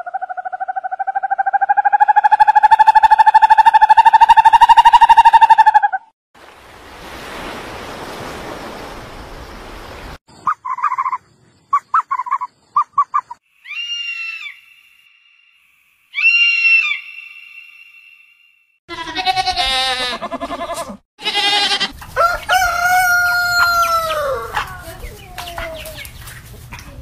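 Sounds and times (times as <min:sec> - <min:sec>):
thin whistle-like tone: 0:17.0 - 0:18.8
pitched animal call: 0:18.9 - 0:21.9.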